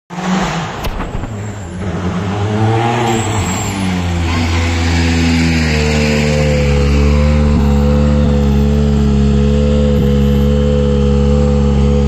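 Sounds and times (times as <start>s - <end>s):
car engine running at low revs: 4.0s - 12.0s.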